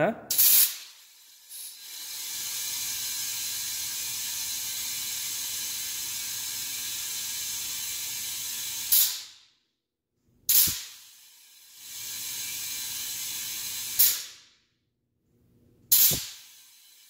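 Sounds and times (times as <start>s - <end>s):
compressed air hissing: 0.3s - 5.1s, 8.6s - 9.2s, 10.5s - 11.1s, 13.8s - 14.3s, 15.9s - 16.8s.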